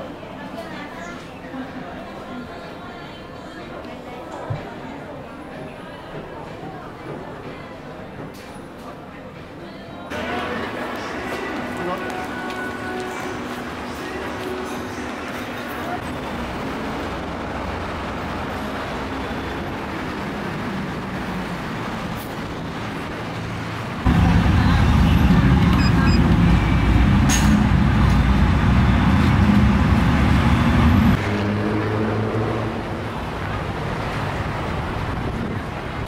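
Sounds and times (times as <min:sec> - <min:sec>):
road traffic noise: 0:10.1 - 0:36.0
loud deep vehicle rumble: 0:13.0 - 0:36.0.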